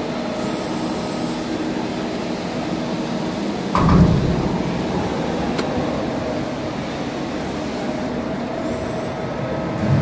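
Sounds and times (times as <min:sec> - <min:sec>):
hydraulic machine humming: 0:00.0 - 0:10.0
low thump: 0:03.8 - 0:05.0.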